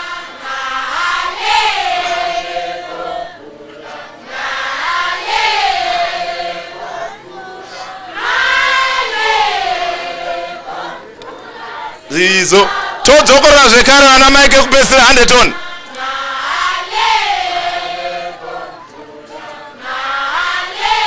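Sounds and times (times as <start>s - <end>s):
women chanting in unison: 0.0s - 13.1s, 15.6s - 21.0s.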